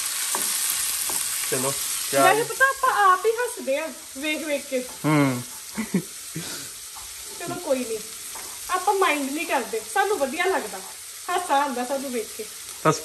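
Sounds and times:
wooden spatula stirring in pan: 0.0s - 2.0s, 6.9s - 8.8s
onions sizzling in oil: 0.0s - 13.0s.

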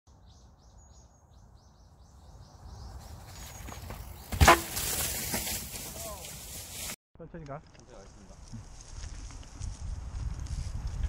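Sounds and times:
bike tyre rustle and wind: 2.6s - 7.0s, 7.6s - 11.0s.

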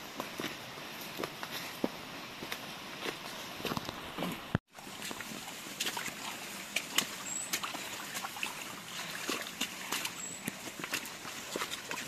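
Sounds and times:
footsteps on forest trail: 0.0s - 12.0s.

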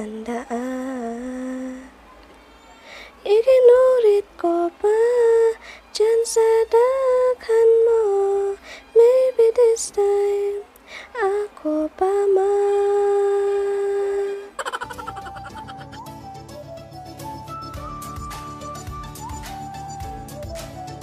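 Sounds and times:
woman singing slow melody: 0.0s - 2.0s, 3.2s - 14.6s.

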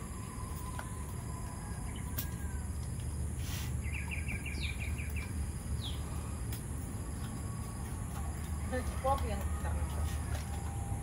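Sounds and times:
steady low rumble: 0.0s - 11.0s
bird chirping: 3.8s - 6.4s.

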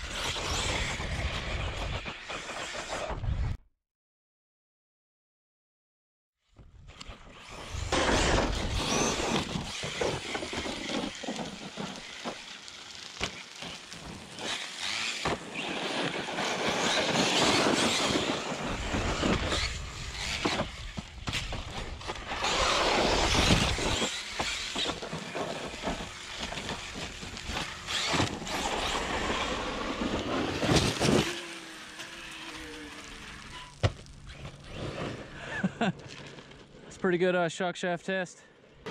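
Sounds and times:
rc car driving over gravel: 0.0s - 3.3s, 6.5s - 36.8s.

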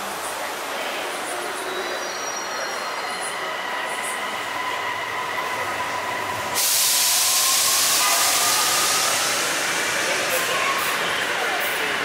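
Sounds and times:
electric train whine: 1.0s - 12.0s
loud hiss: 6.4s - 10.7s.

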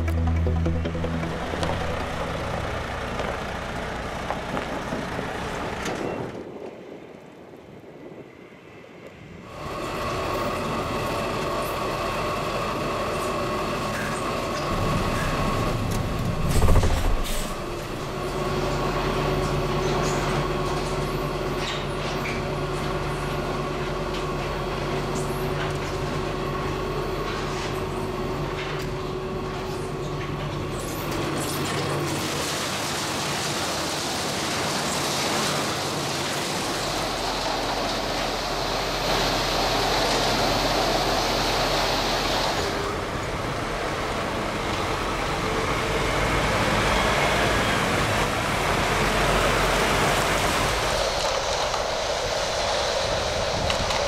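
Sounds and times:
loud low rumble: 0.0s - 4.9s, 14.7s - 18.7s
machinery humming: 0.0s - 5.8s, 9.6s - 27.2s.

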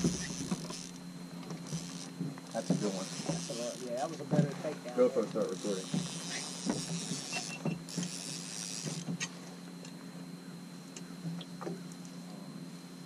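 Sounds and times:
fishing reel ticking and clicking: 0.0s - 1.0s, 1.6s - 4.1s, 5.2s - 9.3s
steady low hum: 0.0s - 13.0s.

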